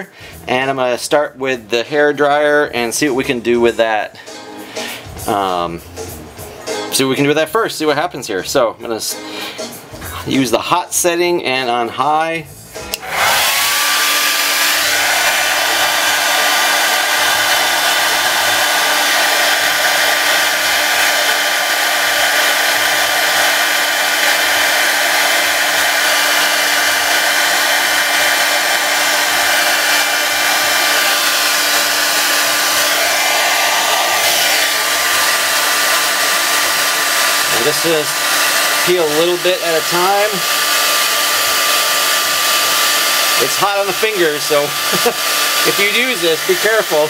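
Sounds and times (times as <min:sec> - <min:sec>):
hair dryer running: 0:12.8 - 0:47.0.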